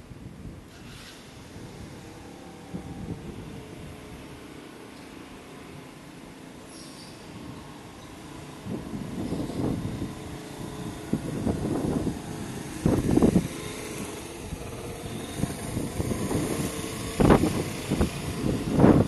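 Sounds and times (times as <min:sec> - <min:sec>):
wind on microphone: 0:00.0 - 0:04.4, 0:08.4 - 0:19.0
motor scooter engine running: 0:01.4 - 0:19.0.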